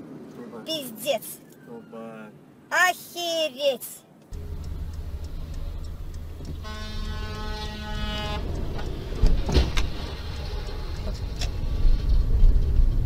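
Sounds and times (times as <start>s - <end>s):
engine and road rumble: 4.1s - 13.0s
car horn blast: 4.4s - 8.6s.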